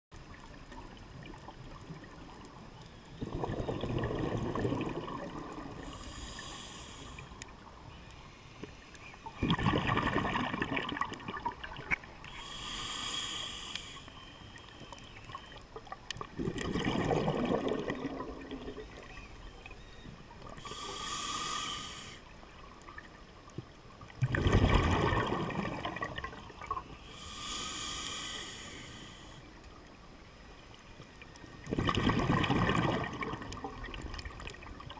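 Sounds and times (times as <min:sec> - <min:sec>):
exhaled bubbles gurgling: 0:00.2 - 0:07.8, 0:09.2 - 0:12.5, 0:15.2 - 0:21.1, 0:24.0 - 0:27.4, 0:31.6 - 0:34.9
air hissing through regulator: 0:05.8 - 0:07.4, 0:12.3 - 0:14.4, 0:20.6 - 0:22.3, 0:27.0 - 0:29.4.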